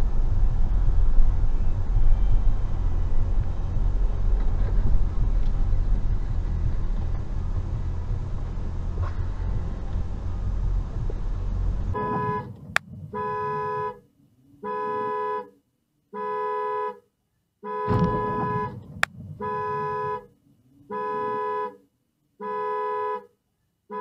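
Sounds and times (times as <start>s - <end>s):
car tyres on wet road: 0.0s - 13.9s, 17.9s - 20.3s
two-tone car horn honking: 11.9s - 14.0s, 14.6s - 20.3s, 20.9s - 24.0s
loud thump: 17.9s - 20.2s.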